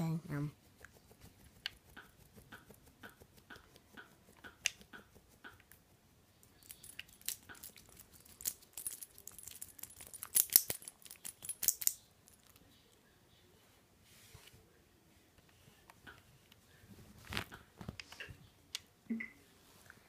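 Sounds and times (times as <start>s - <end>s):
bedcovers rustling: 16.9s - 18.0s.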